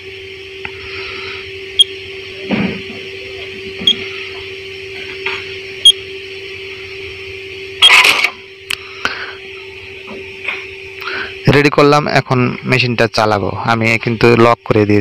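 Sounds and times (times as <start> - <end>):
steady machine hum: 0.0 - 15.0
short high beeps: 7.8 - 8.1
mechanical clatter: 7.8 - 8.4.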